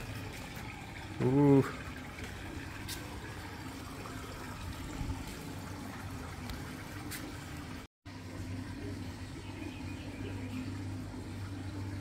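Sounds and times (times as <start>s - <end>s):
pool water trickling: 0.0s - 12.0s.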